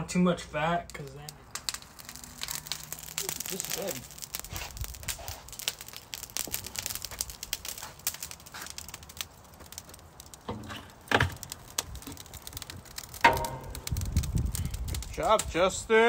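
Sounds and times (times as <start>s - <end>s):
charcoal crackling and popping: 0.0s - 16.0s.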